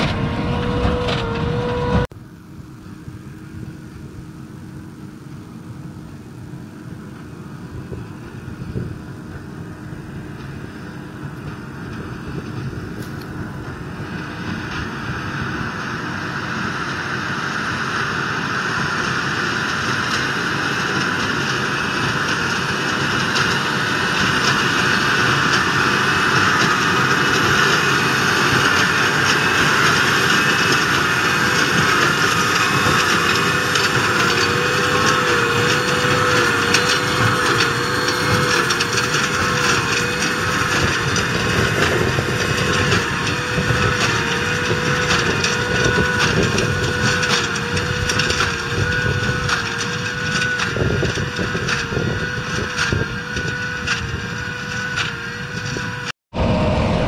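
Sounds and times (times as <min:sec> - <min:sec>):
tractor diesel engine running: 0:00.0 - 0:57.0
baler mechanical clatter: 0:20.0 - 0:57.0.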